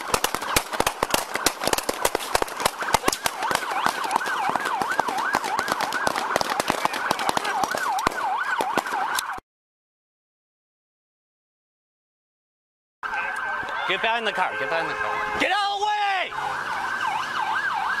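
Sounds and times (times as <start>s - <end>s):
police siren wailing and yelping: 2.3s - 9.4s, 13.0s - 14.4s, 15.6s - 18.0s.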